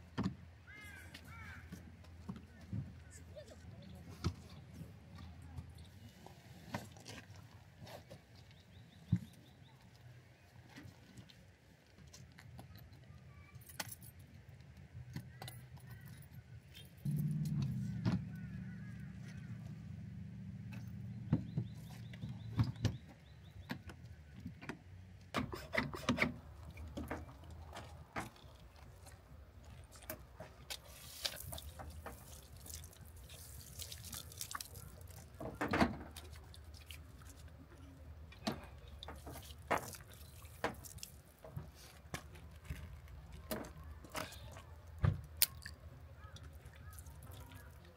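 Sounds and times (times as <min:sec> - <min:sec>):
low steady hum: 0:16.8 - 0:23.6.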